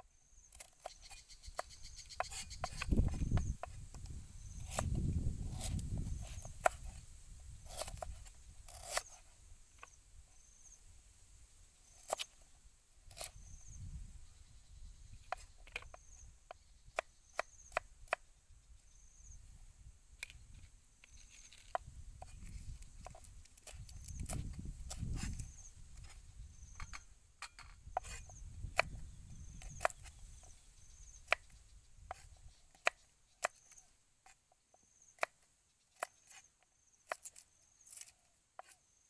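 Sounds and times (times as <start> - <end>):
knife cutting on wooden block: 0.5 - 3.9, 4.6 - 7.0, 7.6 - 9.2, 12.0 - 12.4, 13.1 - 13.4, 21.0 - 30.5, 37.1 - 38.8.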